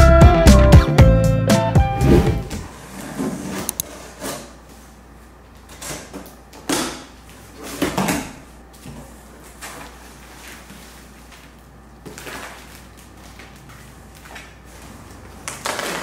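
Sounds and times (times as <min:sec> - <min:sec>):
cardboard flaps folding: 0:07.6 - 0:16.0
bubble wrap rustling: 0:09.1 - 0:16.0.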